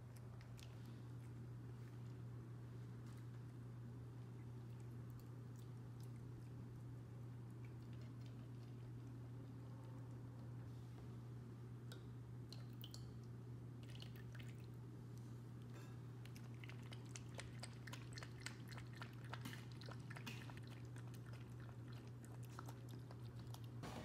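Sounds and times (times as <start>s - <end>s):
steady low hum: 0.0s - 24.0s
puppy chewing from metal bowl: 16.3s - 23.8s.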